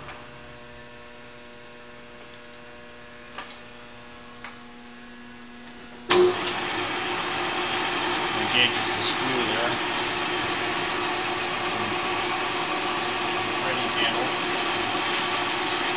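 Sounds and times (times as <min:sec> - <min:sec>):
lathe running loudly: 0:06.1 - 0:15.9.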